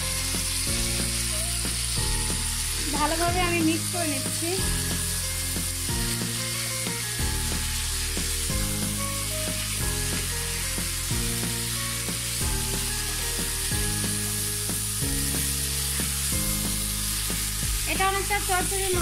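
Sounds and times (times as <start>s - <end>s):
background music with bass line: 0.0s - 19.0s
food sizzling in a pan: 0.0s - 19.0s.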